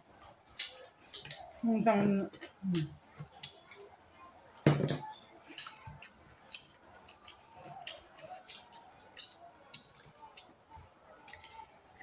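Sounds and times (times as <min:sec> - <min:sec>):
wet chewing clicks: 0:00.2 - 0:01.6, 0:05.5 - 0:10.6, 0:11.2 - 0:11.7
lip smacks: 0:05.5 - 0:10.5.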